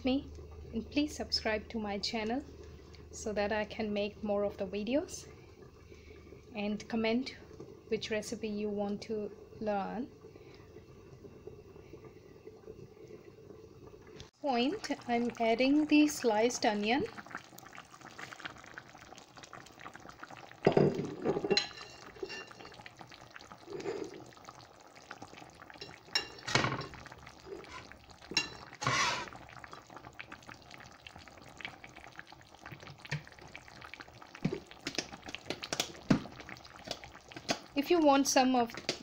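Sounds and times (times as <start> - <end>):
curry bubbling in a pan: 0.0 - 39.0
onion tipped into pan: 26.4 - 26.9.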